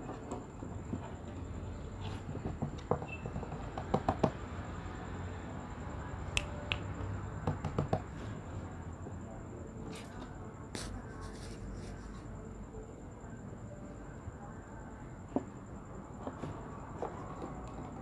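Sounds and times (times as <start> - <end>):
finger clicks: 6.3 - 6.9.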